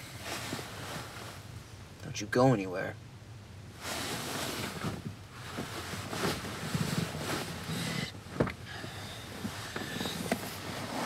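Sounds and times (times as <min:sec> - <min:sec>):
rustling and shifting on seat: 0:00.0 - 0:01.6, 0:03.7 - 0:11.0.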